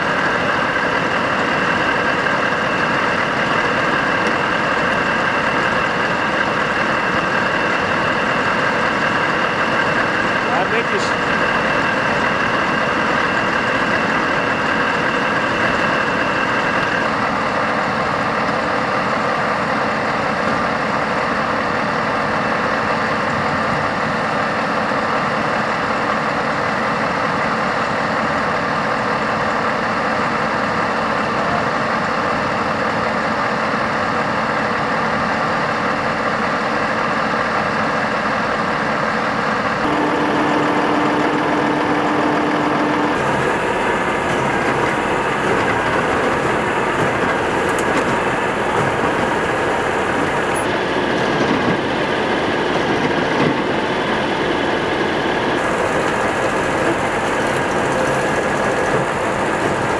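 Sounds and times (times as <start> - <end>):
diesel engine idling: 0.0 - 59.9
faint high whine: 39.8 - 44.2.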